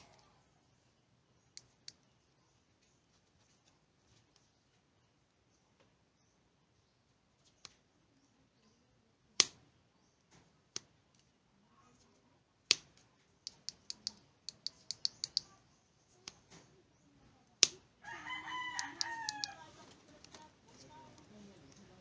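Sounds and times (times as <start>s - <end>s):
rooster crowing: 18.0s - 19.7s.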